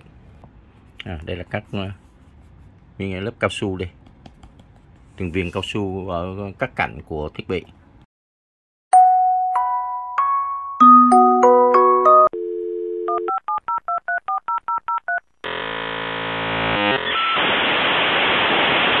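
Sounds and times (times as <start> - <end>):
telephone dial tone: 12.2 - 15.2.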